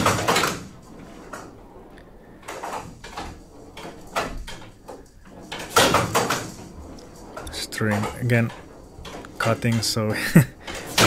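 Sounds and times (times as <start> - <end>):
ball clacking against wooden walls: 0.0 - 11.0.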